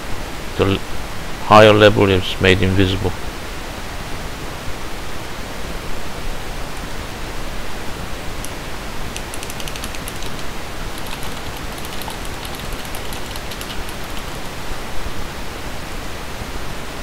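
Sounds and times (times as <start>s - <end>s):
steady background hiss: 0.0s - 17.0s
keyboard typing clicks: 8.4s - 14.6s.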